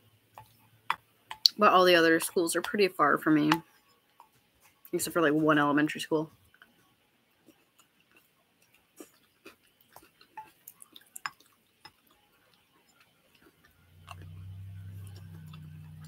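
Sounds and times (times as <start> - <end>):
low steady hum: 0.0 - 16.0
person chewing: 6.5 - 16.0.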